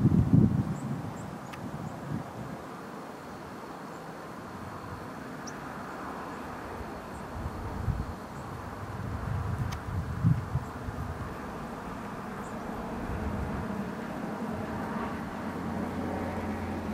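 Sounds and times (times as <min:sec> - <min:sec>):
wind buffeting microphone: 0:00.0 - 0:02.6, 0:06.8 - 0:16.9.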